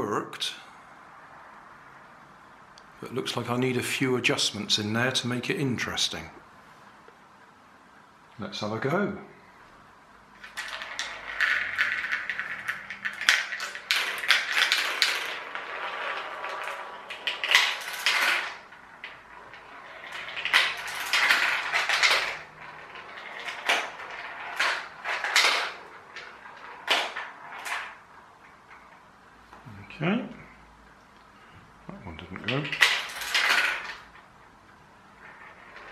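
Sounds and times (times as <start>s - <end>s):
marbles rolling down plastic track: 10.4s - 29.1s, 32.4s - 34.4s, 35.0s - 35.9s.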